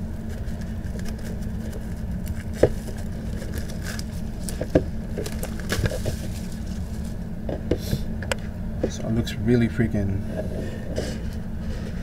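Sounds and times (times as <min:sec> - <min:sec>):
steady low hum: 0:00.0 - 0:12.0
plastic wrapping crinkling: 0:00.3 - 0:07.2.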